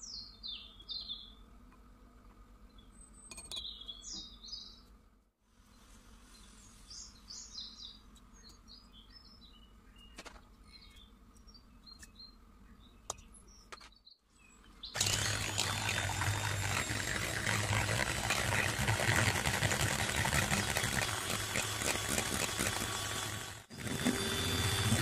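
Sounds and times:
bird chirps: 0:00.0 - 0:01.4, 0:02.7 - 0:04.9, 0:06.8 - 0:15.0
electric hand mixer beating eggs: 0:15.0 - 0:25.0.

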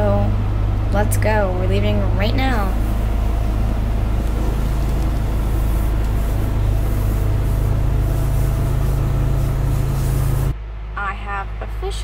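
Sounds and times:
boat engine humming: 0:00.0 - 0:10.6.

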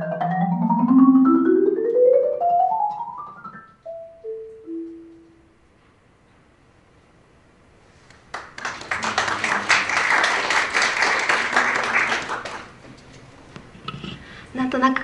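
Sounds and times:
audience applauding: 0:08.2 - 0:12.8.

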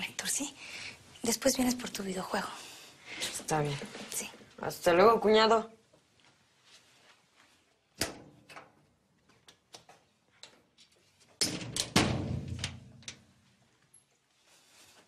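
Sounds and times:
door banging shut: 0:11.4 - 0:13.0.

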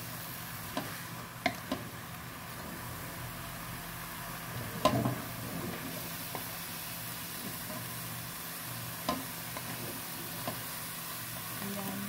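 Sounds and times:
vegetables sizzling in a pan: 0:00.0 - 0:12.0
spatula stirring in metal pan: 0:09.0 - 0:10.8.

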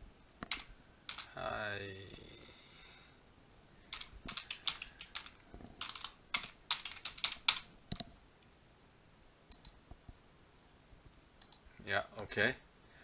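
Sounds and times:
typing on computer keyboard: 0:00.4 - 0:01.3, 0:03.9 - 0:07.7.

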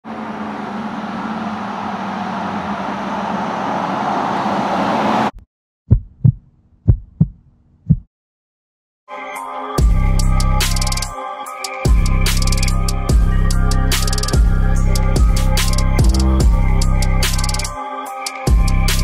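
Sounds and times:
deep thumps: 0:05.9 - 0:08.1.

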